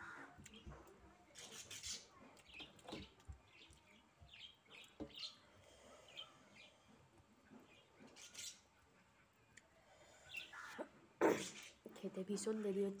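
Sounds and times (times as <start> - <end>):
faint bird chirps: 7.6 - 11.9.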